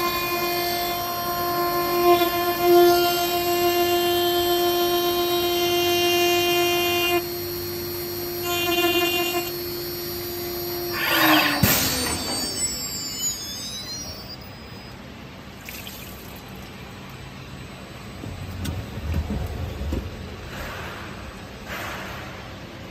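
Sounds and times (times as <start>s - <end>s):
spindle whine cutting glass: 0.0s - 15.0s.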